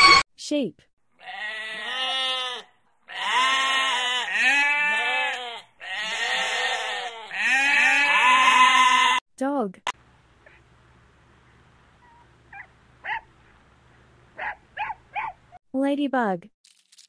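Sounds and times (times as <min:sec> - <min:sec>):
sheep bleating: 0:01.2 - 0:09.2.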